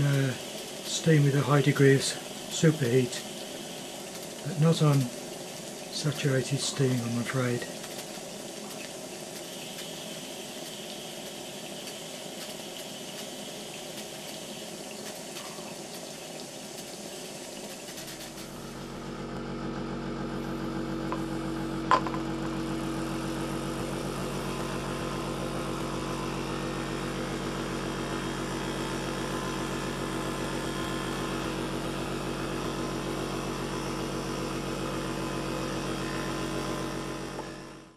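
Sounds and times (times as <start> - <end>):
steam hissing: 0.0 - 19.0
small engine buzzing: 0.0 - 37.9.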